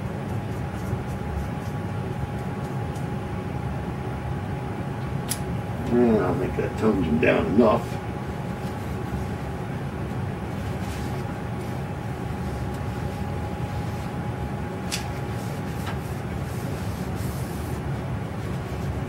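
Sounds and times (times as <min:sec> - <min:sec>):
faint constant hum: 0:00.0 - 0:19.0
paper towel rubbing on glass: 0:15.2 - 0:19.0.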